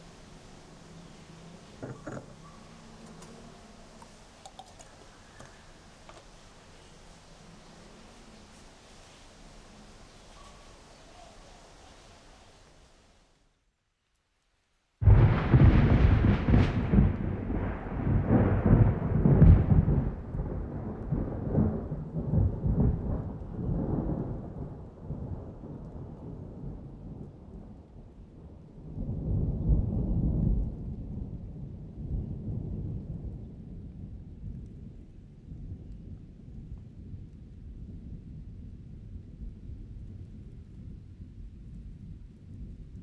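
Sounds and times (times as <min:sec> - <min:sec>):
thunder rumbling: 0:15.0 - 0:43.0.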